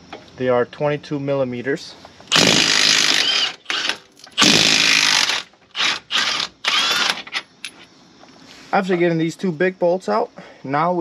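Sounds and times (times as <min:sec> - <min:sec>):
power tool in bursts: 0:02.3 - 0:07.4.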